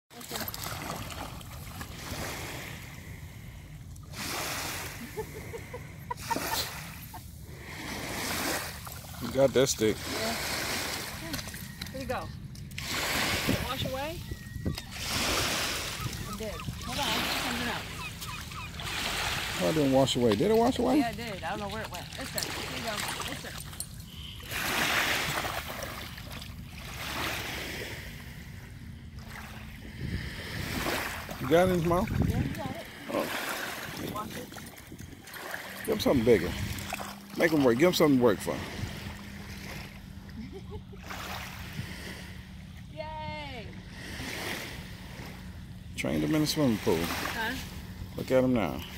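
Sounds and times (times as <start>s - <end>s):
water splashing from dog swimming: 0.1s - 3.2s, 14.8s - 23.8s, 24.4s - 27.9s
water lapping and splashing: 0.1s - 48.9s
wind rumbling on microphone: 11.0s - 19.5s, 29.6s - 33.1s, 33.8s - 35.4s.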